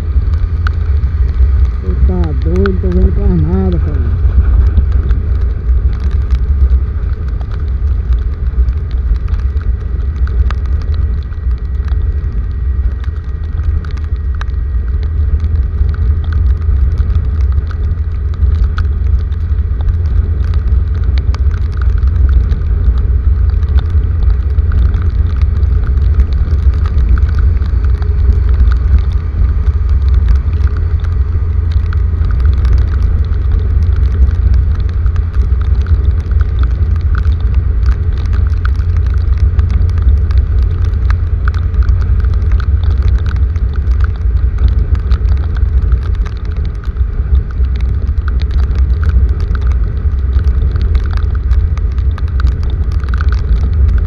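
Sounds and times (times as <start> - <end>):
deep rumble: 0.0 - 54.0
heavy rain falling: 0.0 - 54.0.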